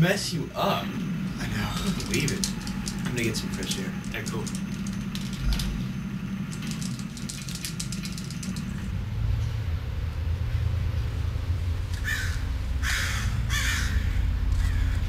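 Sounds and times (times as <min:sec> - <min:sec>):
low hum: 0:00.0 - 0:15.0
low outdoor rumble: 0:00.0 - 0:15.0
harsh bird calls: 0:12.0 - 0:15.0.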